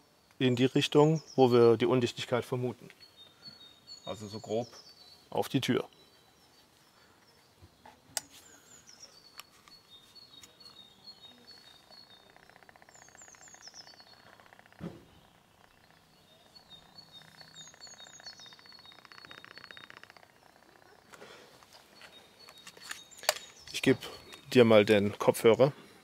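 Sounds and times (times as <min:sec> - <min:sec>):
songbird singing: 0:00.0 - 0:26.0
dull thump: 0:14.8 - 0:15.2.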